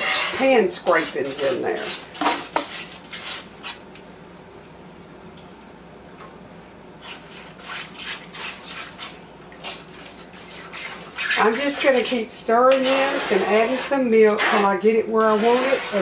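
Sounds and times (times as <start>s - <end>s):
whisk scraping in skillet: 0.0s - 3.8s, 7.0s - 16.0s.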